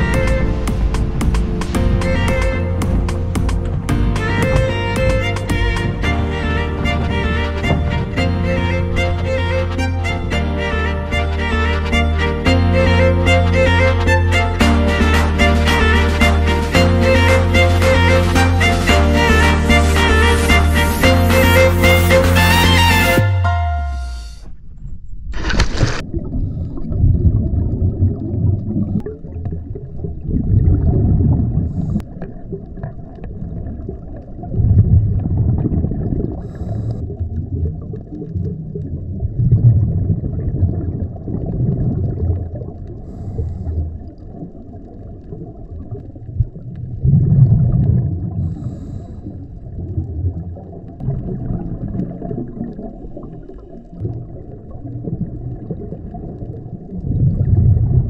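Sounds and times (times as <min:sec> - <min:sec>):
scuba regulator bubble exhalations: 0:26.0 - 0:58.0.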